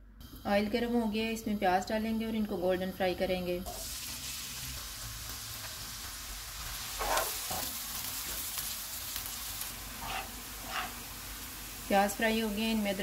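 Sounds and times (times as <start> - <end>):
onion sizzling in oil: 3.6 - 13.0
spoon scraping pan: 7.0 - 7.8, 10.0 - 11.0.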